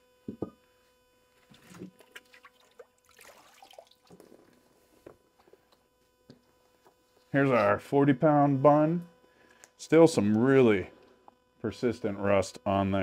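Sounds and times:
water sloshing and dripping: 1.5s - 4.3s.

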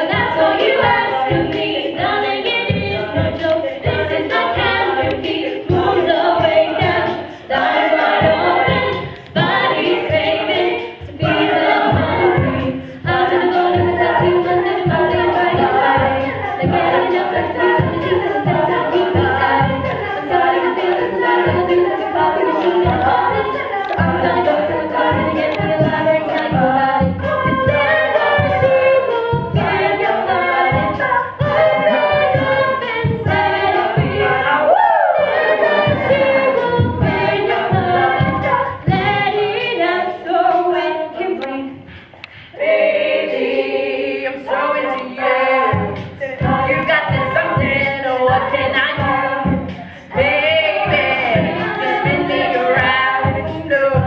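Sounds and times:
steady low beat: 0.0s - 40.8s, 45.4s - 54.0s
female backing vocals: 0.0s - 54.0s
female lead singer: 44.3s - 54.0s.

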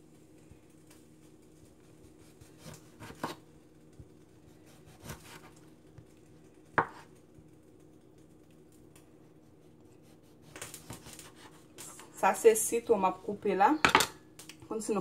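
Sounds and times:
knife knocking on cutting board: 6.8s - 7.0s.

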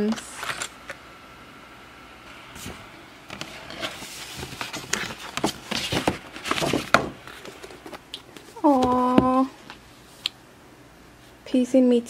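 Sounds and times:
paper bag and tissue rustling: 2.6s - 9.5s.

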